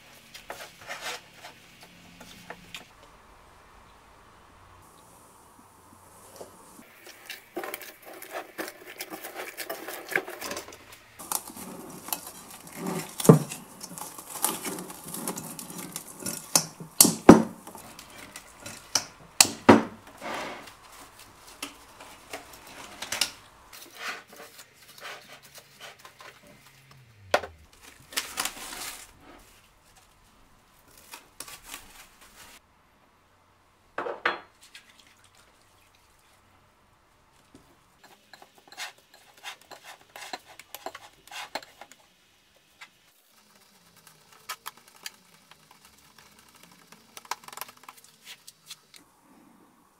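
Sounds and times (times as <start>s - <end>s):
plastic cling wrap crinkling: 6.8s - 19.3s, 27.7s - 32.6s, 43.2s - 49.1s
hand squeezing sticky dough: 42.9s - 49.1s.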